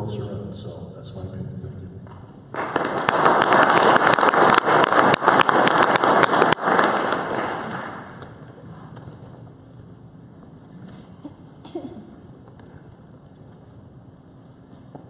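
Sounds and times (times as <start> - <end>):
audience applauding: 2.5 - 8.5.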